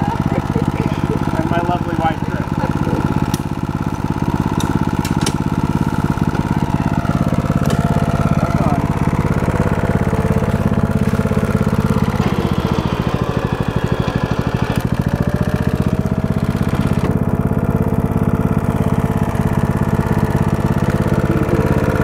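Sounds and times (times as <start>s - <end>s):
small engine puttering: 0.0s - 22.0s.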